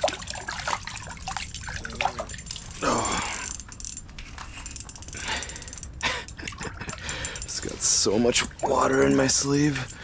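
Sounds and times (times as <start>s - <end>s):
water splashing and dripping: 0.0s - 3.5s.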